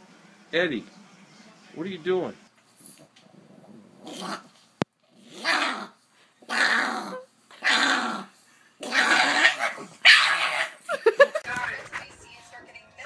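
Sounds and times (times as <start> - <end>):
dog growling: 3.0 - 4.5, 5.1 - 10.8.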